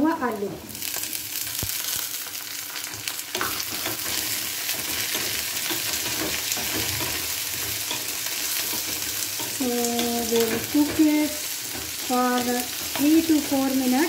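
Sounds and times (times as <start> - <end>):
potatoes sizzling in hot oil: 0.0 - 14.0
wooden spatula scraping a wok: 2.8 - 14.0.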